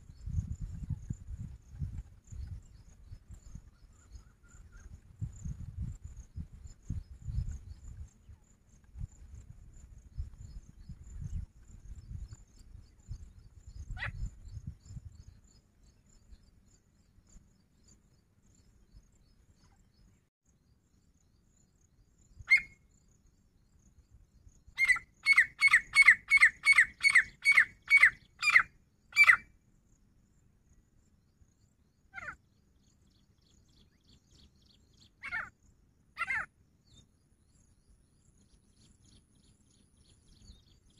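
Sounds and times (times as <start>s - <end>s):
bird calling: 22.5s - 22.8s, 24.8s - 29.4s, 32.1s - 32.4s, 35.1s - 35.5s, 36.2s - 36.5s.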